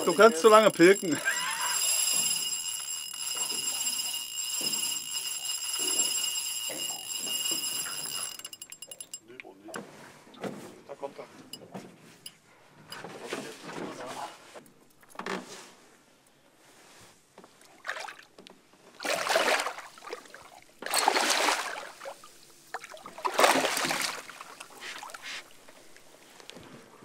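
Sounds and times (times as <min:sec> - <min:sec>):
fish thrashing and splashing water: 0:19.0 - 0:25.4.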